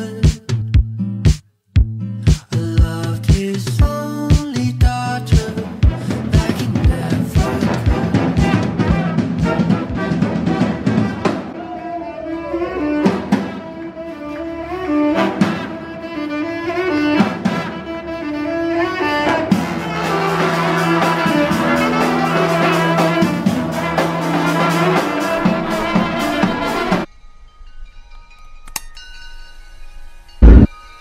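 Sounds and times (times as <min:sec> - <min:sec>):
brass band playing upbeat tune: 0:05.8 - 0:11.6, 0:19.3 - 0:27.1.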